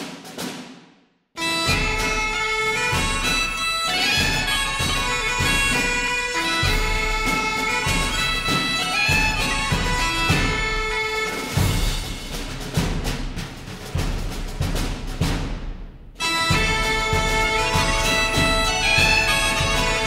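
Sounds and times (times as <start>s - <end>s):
drum beat: 0.0s - 20.0s
bagpipes playing held notes: 1.4s - 11.9s, 16.2s - 20.0s.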